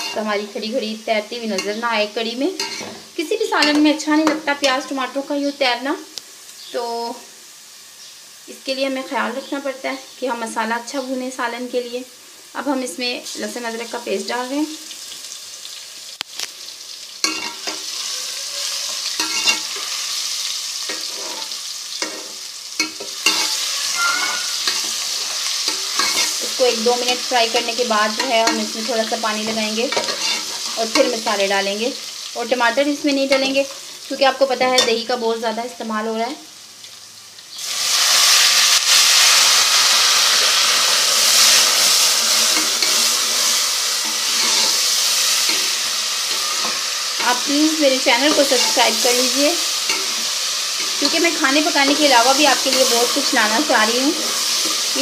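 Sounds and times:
onions frying in hot oil: 0.0s - 55.0s
spoon scraping metal pot: 2.6s - 2.9s, 18.8s - 19.8s, 20.9s - 26.4s, 29.9s - 31.2s, 42.4s - 44.8s, 48.2s - 49.0s.

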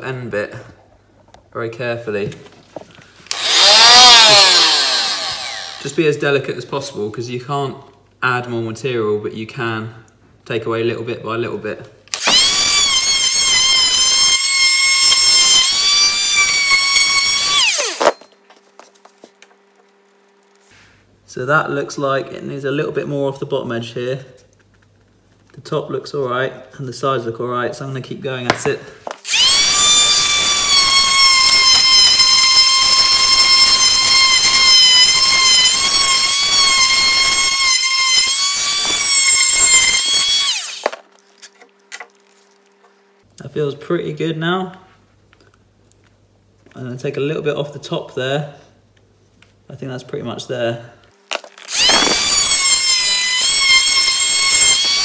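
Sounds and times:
oscillating multi-tool whine: 3.3s - 6.0s, 12.2s - 18.4s, 29.2s - 41.0s, 51.6s - 55.0s.

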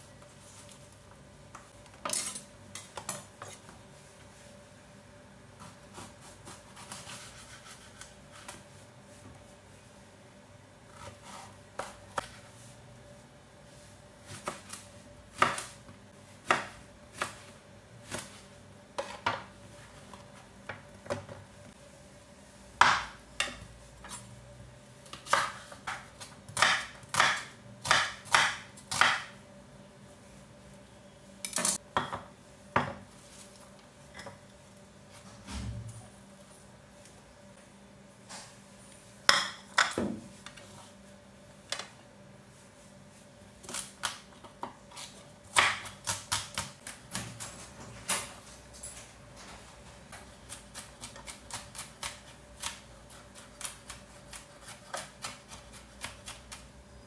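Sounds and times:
knife chopping on wooden board: 25.2s - 29.3s.

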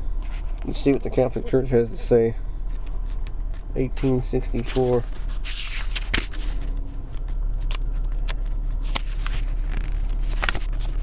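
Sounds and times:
steady low hum: 0.0s - 11.0s
book pages turning: 2.7s - 11.0s.

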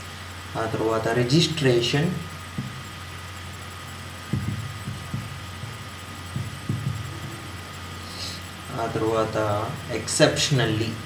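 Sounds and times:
steady electrical hum: 0.0s - 11.0s
marker writing on a whiteboard: 4.3s - 7.5s.

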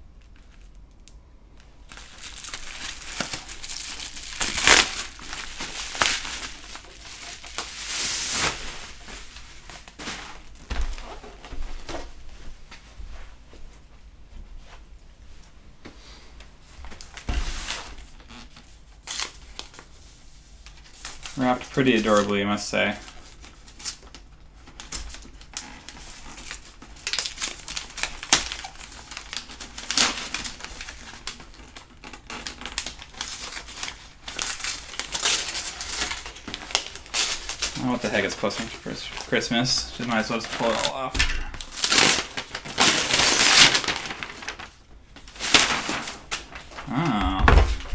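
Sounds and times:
wrapping paper crinkling: 0.2s - 12.4s, 16.8s - 47.9s
packing foam rustling: 1.9s - 12.2s, 20.7s - 47.9s.

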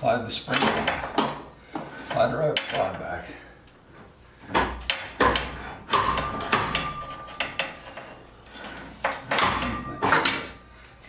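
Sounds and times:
metal ringing: 5.3s - 10.7s.

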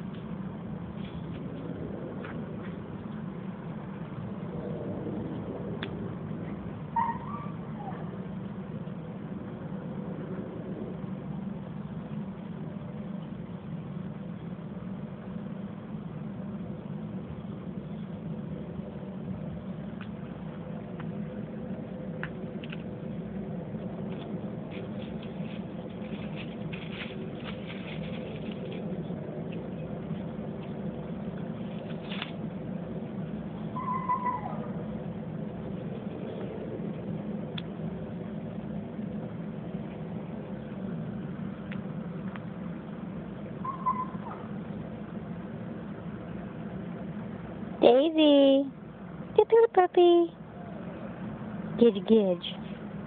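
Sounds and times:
low mechanical hum: 0.0s - 53.0s
dogs stepping through dry leaves: 24.6s - 29.2s.

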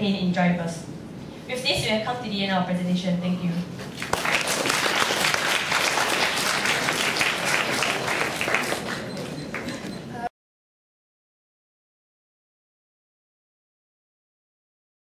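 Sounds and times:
audience applauding: 3.9s - 9.9s.

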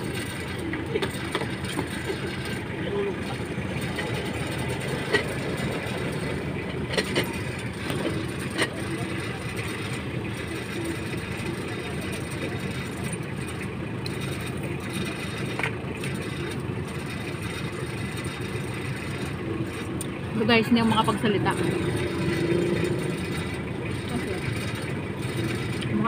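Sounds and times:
traffic rumble: 0.0s - 26.0s.

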